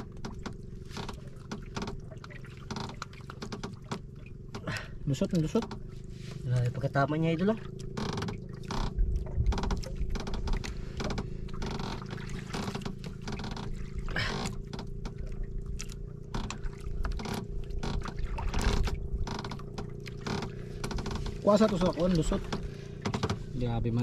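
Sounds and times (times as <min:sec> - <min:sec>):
low mechanical hum: 0:00.0 - 0:24.0
wind rumble: 0:08.4 - 0:11.4.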